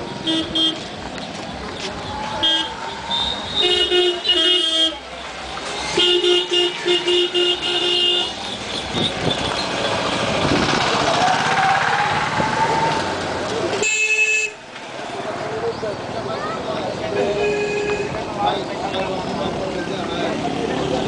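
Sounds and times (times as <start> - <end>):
street traffic: 0.0 - 21.0
vehicle horns honking: 0.2 - 0.9, 2.4 - 5.1, 5.8 - 10.0, 13.8 - 14.7, 17.1 - 18.3
motor vehicle passing close: 8.5 - 13.8.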